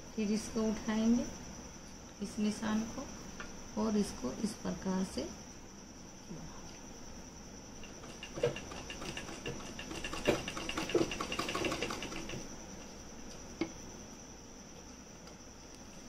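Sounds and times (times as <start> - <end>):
sewing machine stitching: 7.8 - 12.4.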